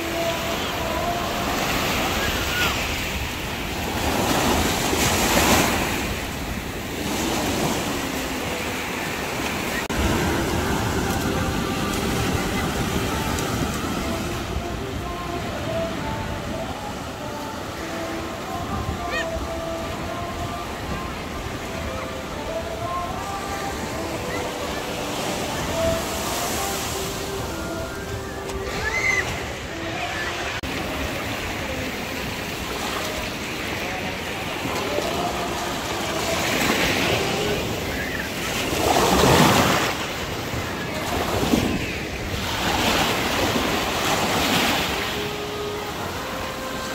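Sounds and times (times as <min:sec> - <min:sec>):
small waves breaking on sand: 0:00.0 - 0:46.9.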